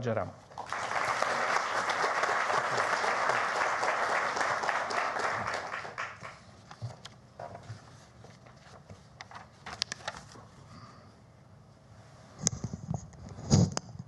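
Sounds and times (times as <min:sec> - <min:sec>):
audience applauding: 0:00.5 - 0:06.4.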